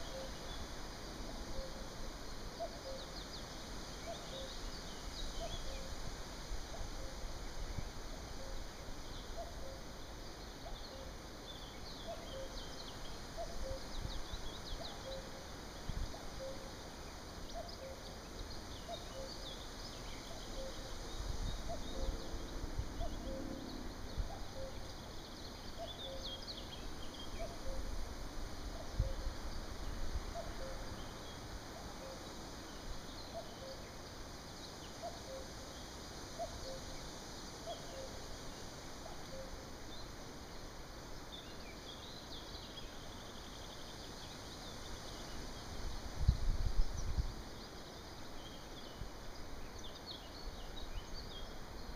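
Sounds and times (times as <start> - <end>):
cuckoo calling: 0.0 - 0.6, 1.3 - 1.8, 24.3 - 24.9, 39.0 - 39.6
songbirds chirping faintly: 0.0 - 51.9
wind rumbling on microphone: 45.8 - 47.5.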